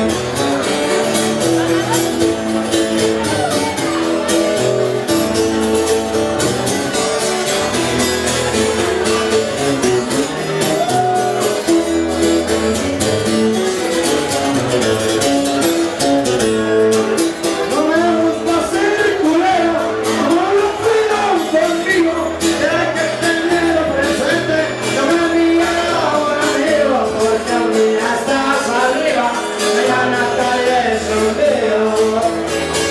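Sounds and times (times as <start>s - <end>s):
acoustic guitar strumming: 0.0s - 32.9s
man singing into a microphone: 17.4s - 32.9s.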